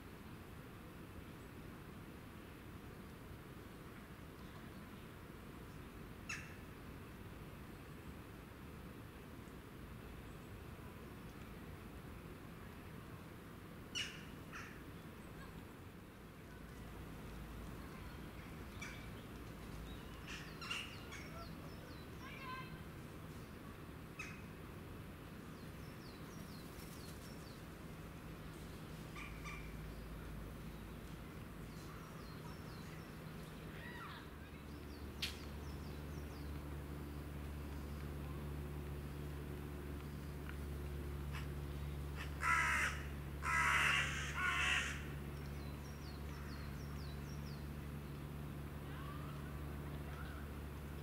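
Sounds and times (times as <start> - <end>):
steady low hum: 0.0 - 51.0
bird singing: 17.9 - 22.7
crow cawing: 42.2 - 45.1.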